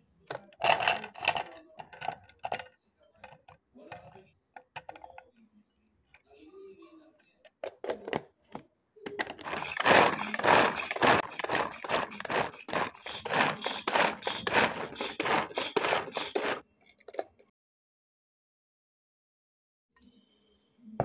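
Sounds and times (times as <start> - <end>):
vegetable chopper chopping: 9.3 - 16.6.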